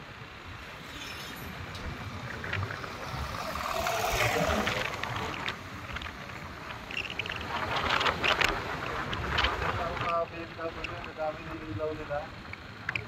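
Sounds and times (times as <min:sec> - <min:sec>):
scooter engine: 0:00.0 - 0:13.0
tyres on dirt road: 0:00.0 - 0:13.0
wind rushing over microphone: 0:01.6 - 0:11.9.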